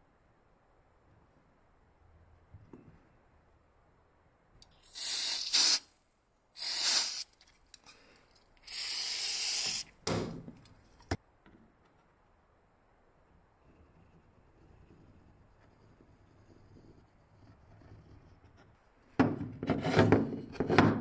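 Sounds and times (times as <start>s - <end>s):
aerosol spray can hissing: 4.8s - 5.9s, 6.6s - 7.3s, 8.6s - 9.9s.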